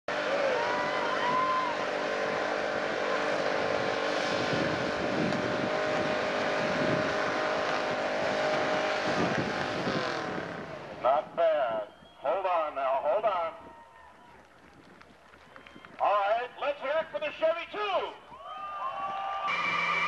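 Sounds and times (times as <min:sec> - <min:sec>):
car engine at high revs: 0:00.1 - 0:11.2, 0:19.5 - 0:20.0.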